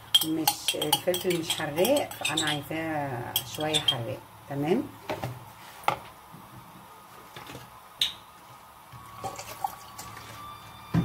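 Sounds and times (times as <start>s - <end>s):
spoon clinking against bowl: 0.0s - 2.6s, 3.3s - 4.0s
spoon stirring wet paste: 0.0s - 4.1s.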